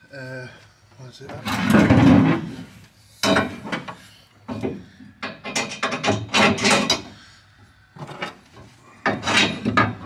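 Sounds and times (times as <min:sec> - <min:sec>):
knocks and clatters of hard parts: 0:01.3 - 0:02.6, 0:03.2 - 0:07.1, 0:08.0 - 0:10.0.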